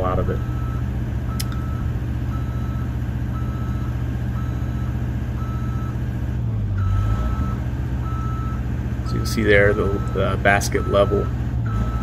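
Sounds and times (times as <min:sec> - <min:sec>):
motion alarm beeping: 0:10.8 - 0:12.0.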